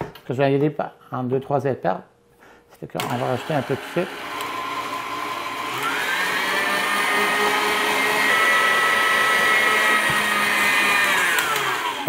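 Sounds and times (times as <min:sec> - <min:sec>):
stand mixer motor whining: 0:03.1 - 0:12.0.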